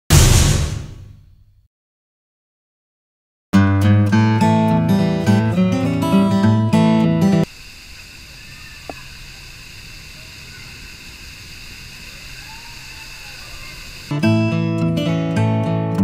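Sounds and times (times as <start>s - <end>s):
acoustic guitar music: 3.6s - 7.4s, 14.1s - 16.0s
moving water: 7.5s - 14.1s
faint voices: 8.2s - 14.1s.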